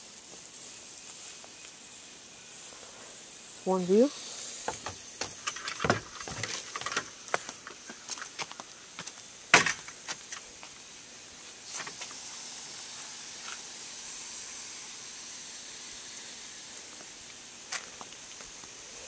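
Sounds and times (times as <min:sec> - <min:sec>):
garden hose spraying water: 0:00.0 - 0:19.0.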